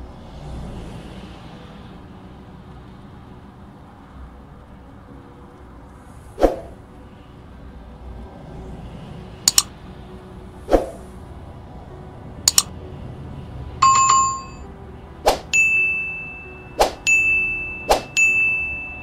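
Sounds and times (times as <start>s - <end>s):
sharp clicks and pops: 9.5s - 9.7s, 12.5s - 12.7s.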